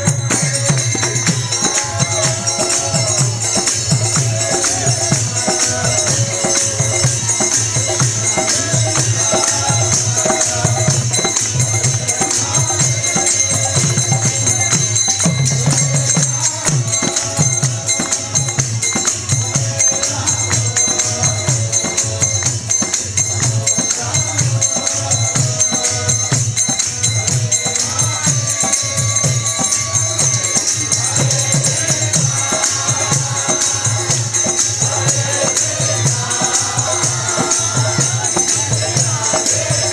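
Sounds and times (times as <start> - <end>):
hand cymbals ringing: 0.0 - 39.9
voices chanting: 0.0 - 39.9.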